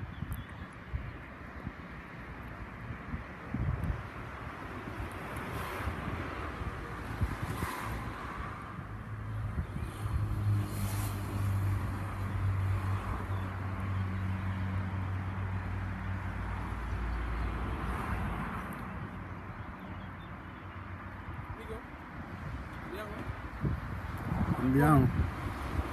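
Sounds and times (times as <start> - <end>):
wind hiss: 2.8 - 12.3.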